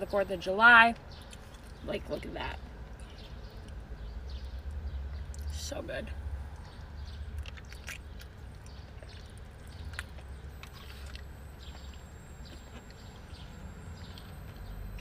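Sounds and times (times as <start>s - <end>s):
low hum: 0.0s - 15.0s
close-up chewing: 1.0s - 2.2s, 2.8s - 5.6s, 6.3s - 15.0s
wet mouth clicks: 6.5s - 13.0s.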